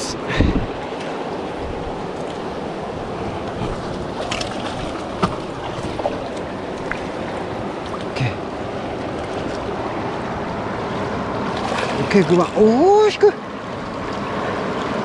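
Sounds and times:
flowing river water: 0.0s - 15.0s.

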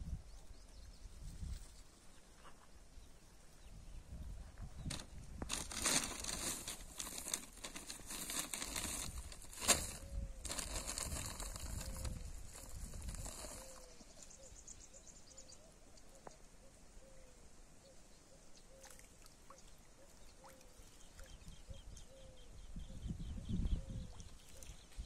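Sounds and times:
brief rustle: 4.6s - 14.0s.

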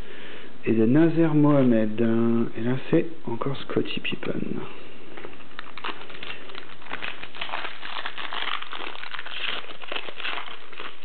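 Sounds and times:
foil wrapper crinkling: 5.1s - 11.0s.

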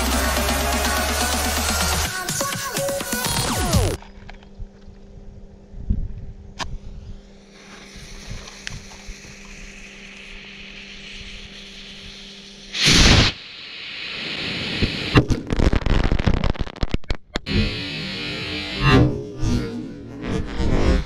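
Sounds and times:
fuse hissing: 7.4s - 15.2s
firecracker bang: 12.8s - 13.4s
rapid crackle of pops: 14.8s - 17.4s.

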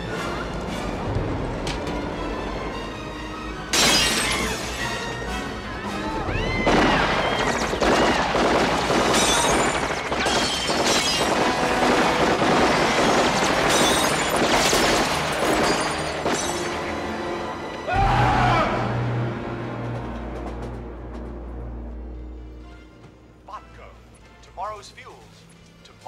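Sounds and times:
film score music: 0.0s - 26.0s
glass shattering: 3.7s - 4.8s, 9.0s - 11.6s, 12.7s - 16.9s
gunfire: 6.6s - 16.4s.

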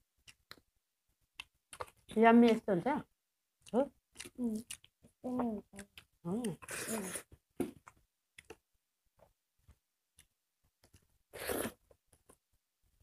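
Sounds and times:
mouth smacks and clicks: 3.6s - 8.6s.

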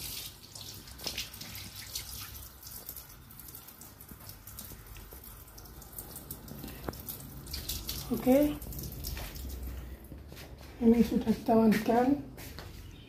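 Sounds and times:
water running from a hose: 0.0s - 10.2s
water splashing and dripping: 0.0s - 12.0s.

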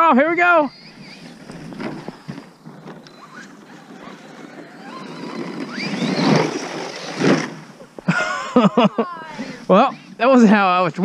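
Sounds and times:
toy truck electric motor whining: 0.5s - 10.8s
loud bursts of noise: 4.8s - 8.3s.

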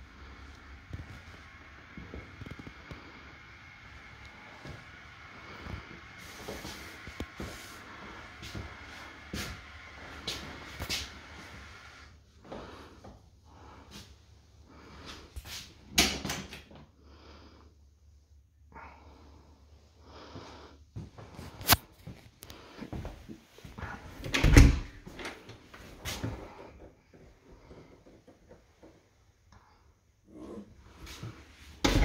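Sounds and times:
cupboard door opening: 24.2s - 25.5s.

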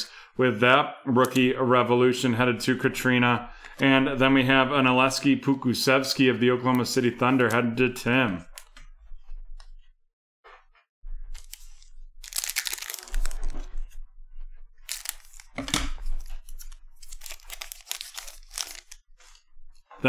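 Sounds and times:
foil wrapper crinkling and tearing: 11.3s - 13.8s, 14.8s - 19.4s.

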